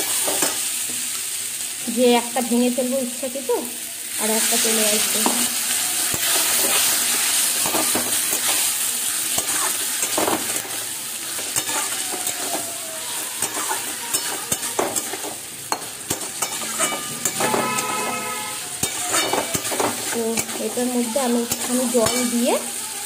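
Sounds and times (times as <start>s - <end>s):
vegetables sizzling in oil: 0.0s - 23.0s
spatula scraping and tapping pan: 5.1s - 5.5s, 6.1s - 8.7s, 9.3s - 10.8s, 11.4s - 12.6s, 13.4s - 22.4s.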